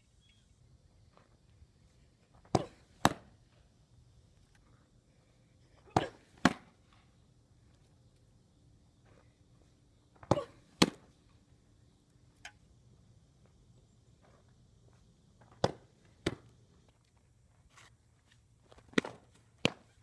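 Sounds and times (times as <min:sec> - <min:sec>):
ball smacking leather mitt: 0:02.5 - 0:03.3, 0:05.9 - 0:06.7, 0:18.9 - 0:19.9.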